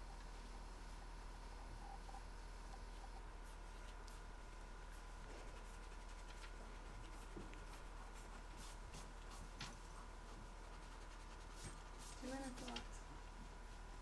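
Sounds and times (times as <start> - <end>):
steady low hum: 0.0 - 14.0
pencils scratching on paper: 4.8 - 13.0.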